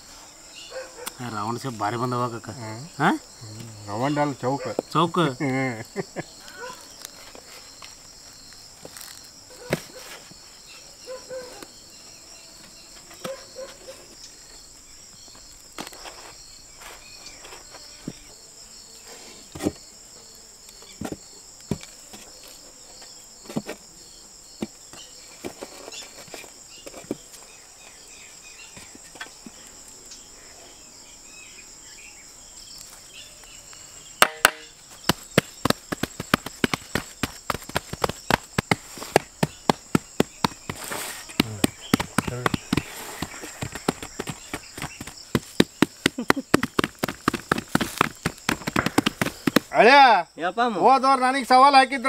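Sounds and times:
insects chirping: 0.0 - 52.0
sharp loud taps: 34.2 - 40.8.

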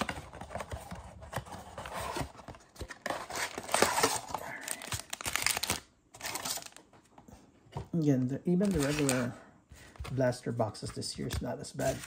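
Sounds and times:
foil wrappers rustling and crinkling: 8.6 - 9.3.

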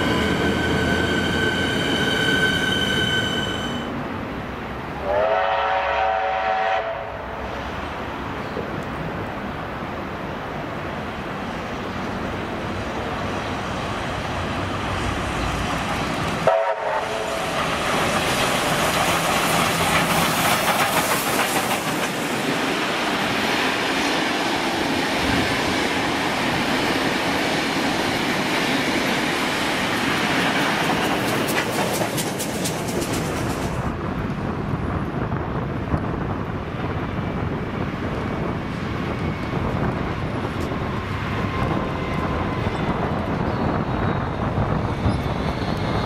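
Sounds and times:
steam locomotive running past: 0.0 - 4.2, 4.9 - 8.7, 11.6 - 46.0
steam whistle: 5.0 - 7.1, 16.4 - 17.4.

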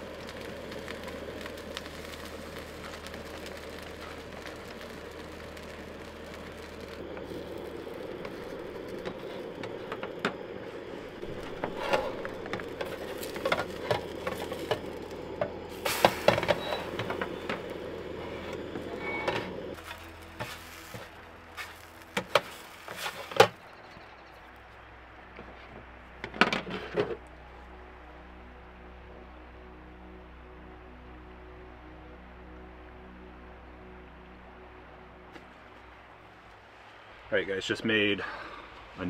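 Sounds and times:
camp stove burner rushing: 0.0 - 24.8, 25.4 - 27.5.

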